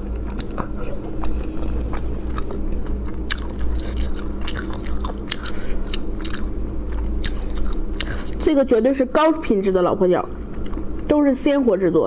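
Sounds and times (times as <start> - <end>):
person chewing and biting: 0.0 - 8.4, 10.5 - 11.1
steady low hum: 0.0 - 12.0.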